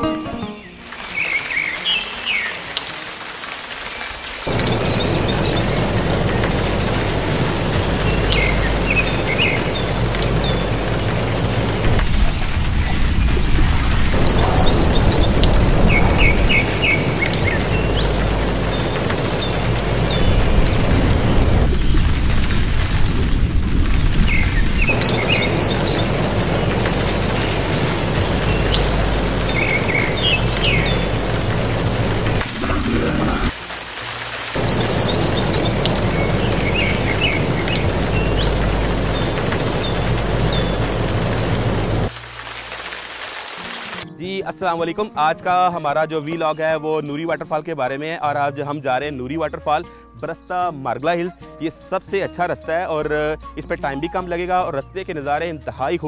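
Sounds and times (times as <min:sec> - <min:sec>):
rushing water: 0:00.7 - 0:44.1
birds chirping: 0:04.5 - 0:23.4, 0:24.0 - 0:33.6, 0:34.6 - 0:42.1.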